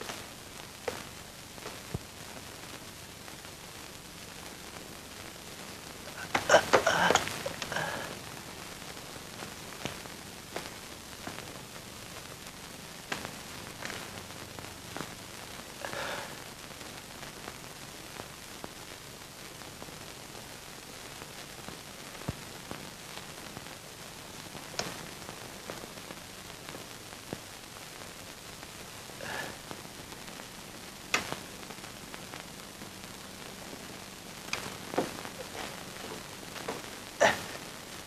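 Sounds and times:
film soundtrack hiss: 0.0 - 38.0
clicks and pops: 6.2 - 8.1, 31.1 - 31.4, 34.4 - 37.4
soft rustle: 31.2 - 38.0.

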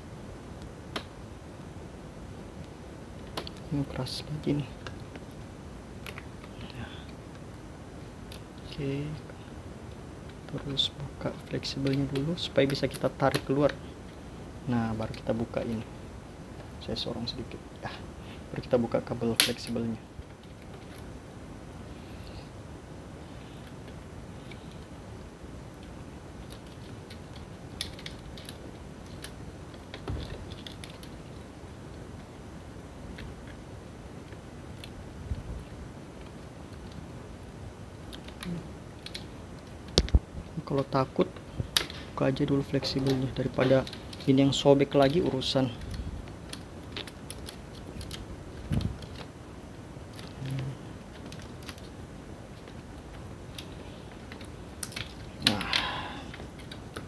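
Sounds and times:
fingers clicking on plastic parts: 53.5 - 57.0.

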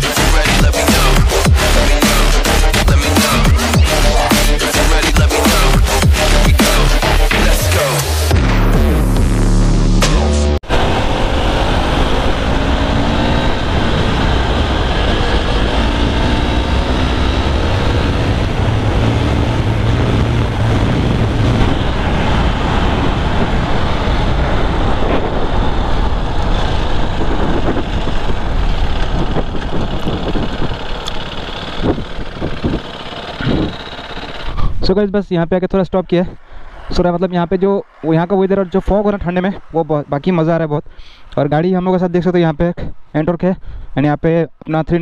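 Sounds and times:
wind rush on microphone: 10.6 - 33.8
motorcycle engine running hard: 10.7 - 34.9.

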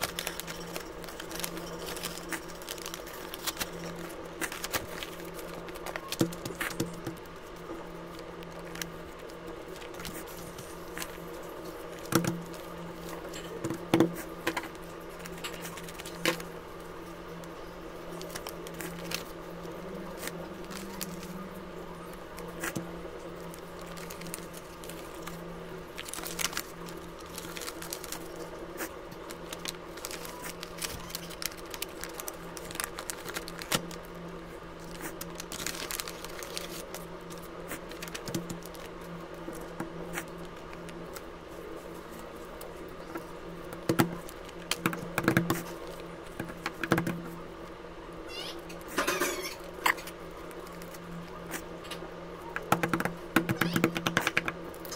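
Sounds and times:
paper tapping and rustling: 0.0 - 7.3, 34.8 - 38.9, 43.1 - 47.4, 52.6 - 54.9
steady low hum: 0.0 - 54.9.

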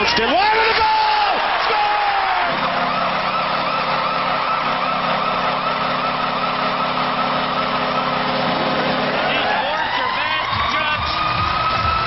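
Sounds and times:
arena crowd cheering: 0.0 - 12.0.

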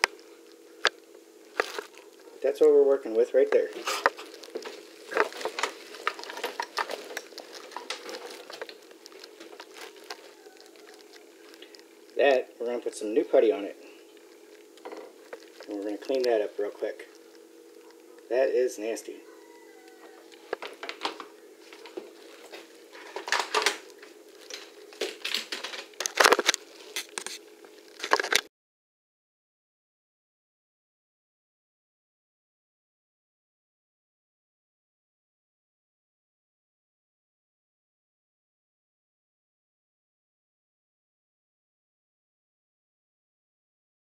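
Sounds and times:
putty scraping and crunching: 0.0 - 2.6, 3.5 - 12.3, 12.9 - 18.3, 20.3 - 28.5
faint steady hum: 0.0 - 28.5.

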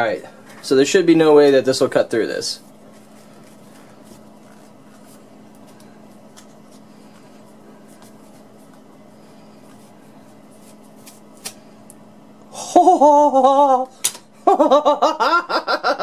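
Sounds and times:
steady low hum: 0.0 - 16.0
person laughing: 12.5 - 16.0.

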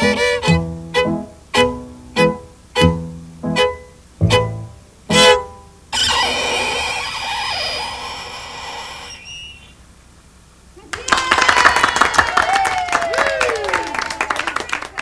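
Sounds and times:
fiddle tune: 0.0 - 9.2
burst of noise: 5.9 - 10.0
voices: 10.7 - 15.0
audience clapping: 10.9 - 15.0.

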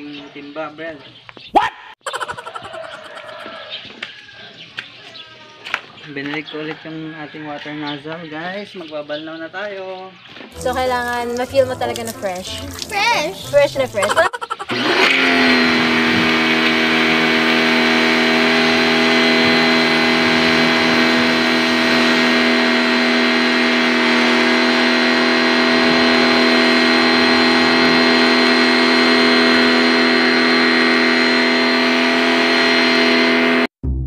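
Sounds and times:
pressure washer motor humming: 10.6 - 33.7.

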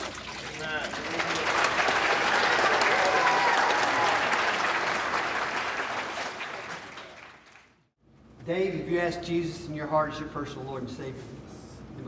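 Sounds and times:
congregation applauding: 0.3 - 7.8.

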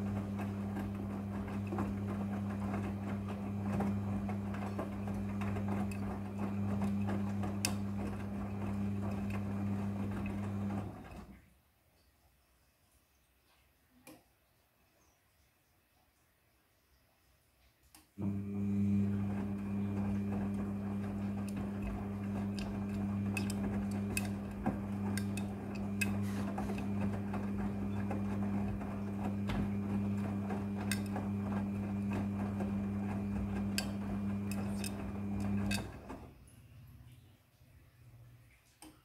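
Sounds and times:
tumbling laundry clicks and knocks: 0.0 - 11.3, 18.9 - 36.3
washing machine motor humming: 0.0 - 11.4, 18.2 - 36.5.

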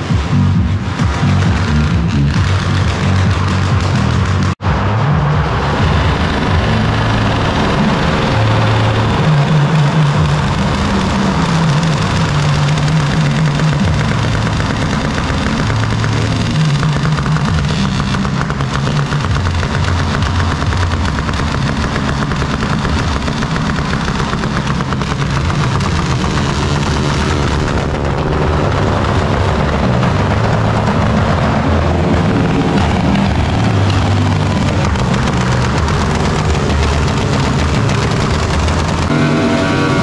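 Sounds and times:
motorcycle engines revving: 0.0 - 40.0.

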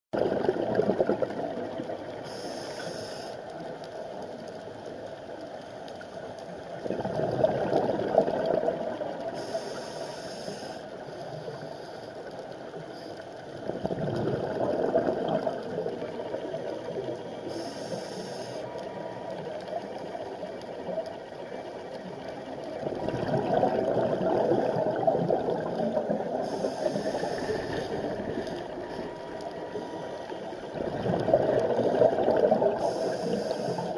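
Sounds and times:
gurgling exhaled bubbles: 0.2 - 2.5, 6.8 - 9.6, 13.6 - 17.6, 22.8 - 33.9
regulator breath hiss: 2.2 - 3.4, 9.3 - 12.2, 17.5 - 18.8, 26.4 - 28.1, 32.8 - 33.9.

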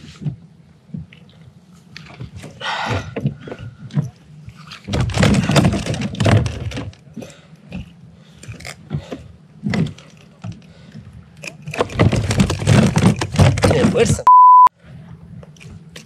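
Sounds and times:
fish thrashing against deck: 4.7 - 7.0.

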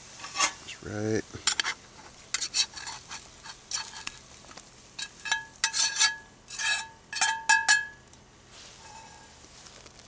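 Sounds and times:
metal spatula scraping skillet: 0.2 - 0.6, 1.4 - 4.2, 5.0 - 7.8, 8.7 - 9.3
metal clinking on pan: 5.0 - 8.0.

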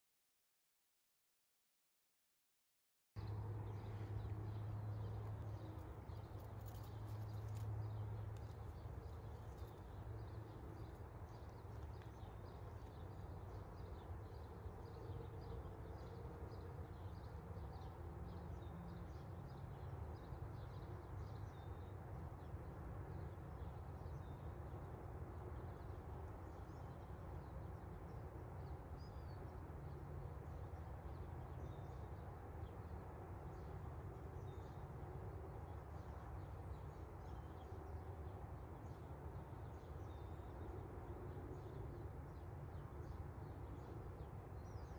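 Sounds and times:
small birds chirping: 3.2 - 22.5, 35.7 - 44.9.

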